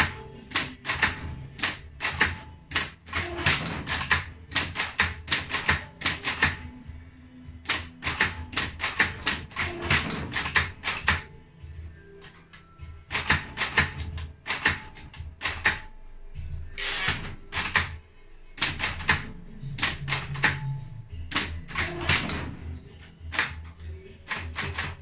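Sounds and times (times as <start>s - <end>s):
typewriter keys striking: 0.0s - 6.6s, 7.6s - 11.3s, 13.1s - 15.8s, 16.8s - 18.0s, 18.6s - 20.6s, 21.3s - 22.6s, 23.3s - 23.6s, 24.2s - 25.0s
typewriter motor humming: 16.8s - 17.9s, 24.2s - 25.0s.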